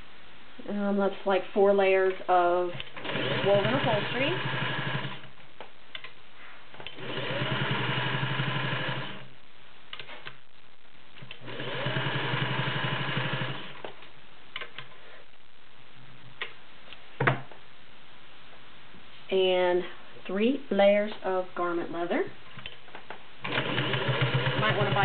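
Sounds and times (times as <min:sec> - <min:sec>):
sewing machine stitching: 0:02.8 - 0:05.3, 0:06.9 - 0:09.3, 0:11.3 - 0:13.8, 0:23.4 - 0:25.0.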